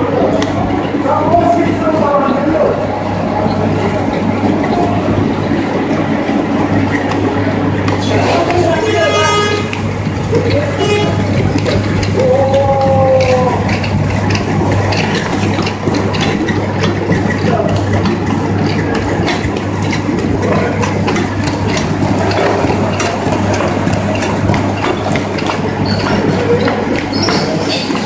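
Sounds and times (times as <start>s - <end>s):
machine motor hum: 0.0s - 28.0s
paper feeding clicks and clatter: 6.8s - 28.0s.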